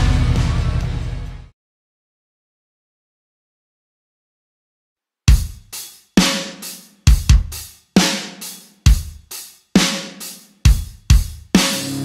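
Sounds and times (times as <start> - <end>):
rock drum kit playing: 0.0 - 1.4, 5.3 - 12.0.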